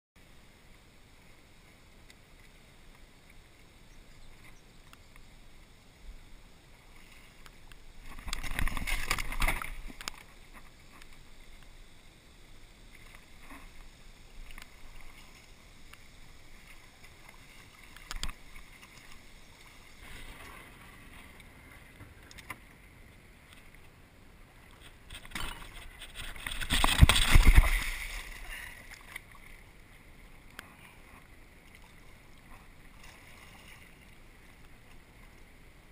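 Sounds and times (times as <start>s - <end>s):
water rushing against canoe hull: 6.8s - 11.6s, 12.9s - 30.0s.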